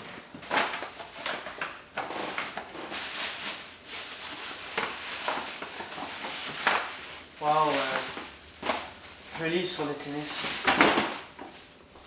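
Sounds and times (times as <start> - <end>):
tissue paper and gift bag rustling: 0.0 - 12.0.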